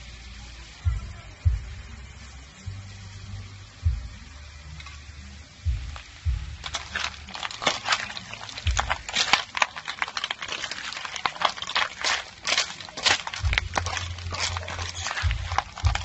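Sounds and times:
snail shells clattering in a wok: 4.7s - 16.0s.

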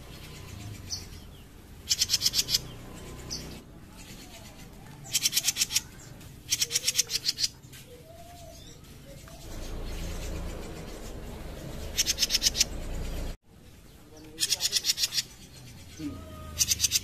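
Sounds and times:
low rough noise: 9.0s - 14.1s.

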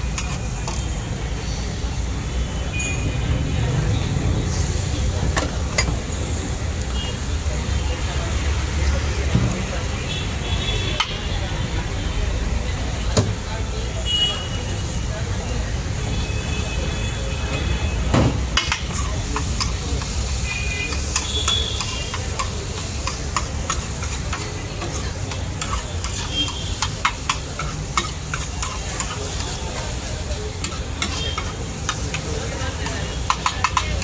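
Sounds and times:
food sizzling: 0.0s - 16.0s, 17.9s - 34.0s
metal spatula clacking on griddle: 0.1s - 0.9s, 18.6s - 20.2s, 20.8s - 34.0s.

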